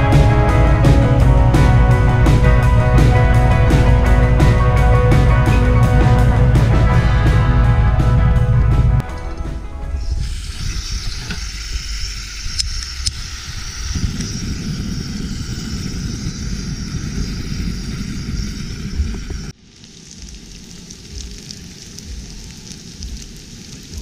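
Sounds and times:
gas burner rushing: 9.9 - 19.6
gas hissing: 9.9 - 24.0
fish frying in oil: 10.7 - 24.0.

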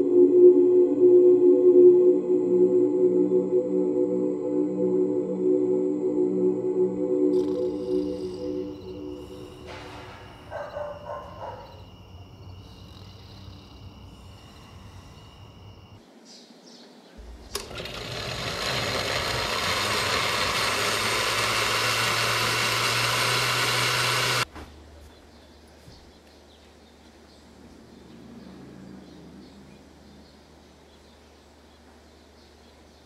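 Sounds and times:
blender motor running: 17.2 - 24.5.

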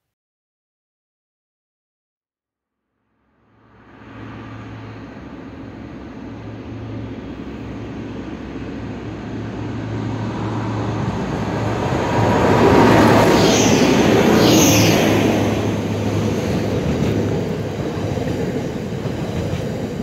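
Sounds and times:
diesel locomotive engines humming: 4.3 - 20.0.

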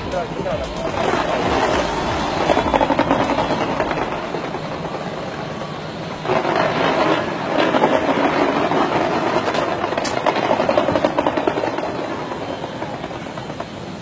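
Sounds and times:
fireworks crackling: 0.0 - 14.0.

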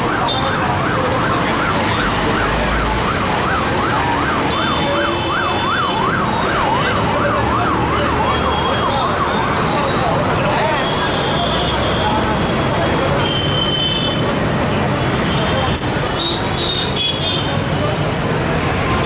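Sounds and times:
electronic siren yelping: 0.0 - 10.0
street traffic: 0.0 - 19.0.

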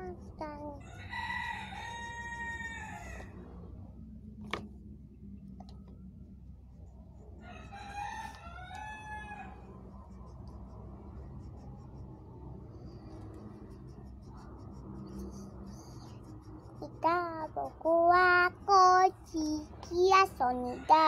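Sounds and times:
steady low rumble: 0.0 - 20.1
rooster crowing: 0.8 - 3.4, 7.4 - 9.8, 20.4 - 21.0.

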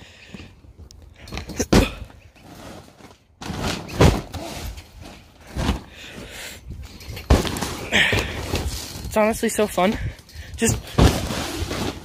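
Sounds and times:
plastic rustling and scraping: 2.3 - 6.3, 6.9 - 9.9, 10.6 - 12.0.

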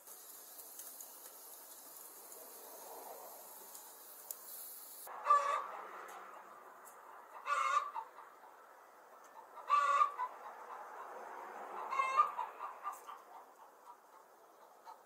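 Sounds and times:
chickens calling: 5.0 - 15.0.

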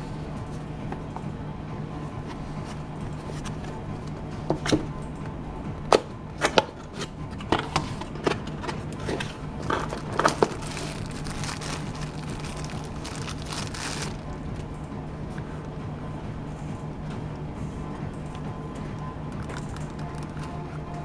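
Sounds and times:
steady low hum: 0.0 - 21.0
plastic bag crinkling: 9.6 - 14.3, 19.4 - 20.7.

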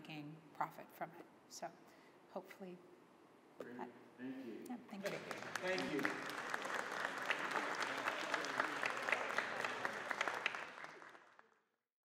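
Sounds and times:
audience applauding: 5.0 - 11.6.

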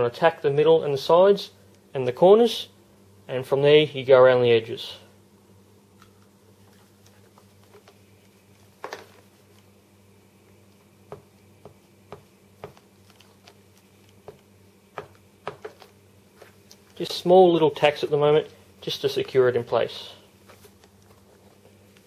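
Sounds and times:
faint steady hum: 0.0 - 22.0
plastic film crinkling: 12.8 - 14.3.

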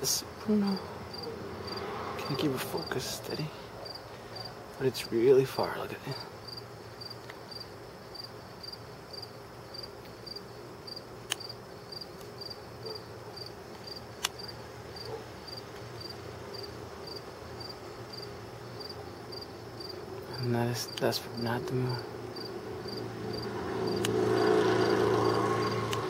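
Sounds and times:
crickets chirping: 0.0 - 26.0
sharp clicks: 14.2 - 14.5, 24.0 - 24.2.

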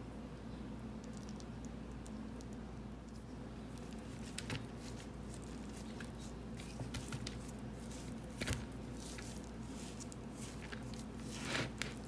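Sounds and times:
damp soil tearing and crumbling: 3.7 - 12.0.

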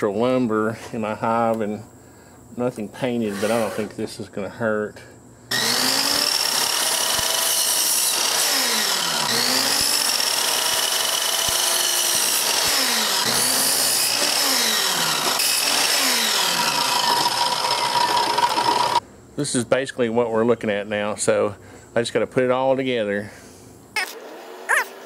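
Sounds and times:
miter saw cutting wood: 3.2 - 4.0, 5.5 - 19.0.

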